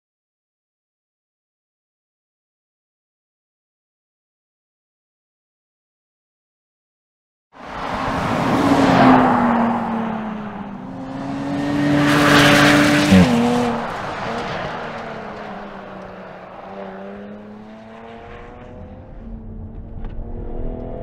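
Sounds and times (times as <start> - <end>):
car engine passing at speed: 7.6 - 21.0.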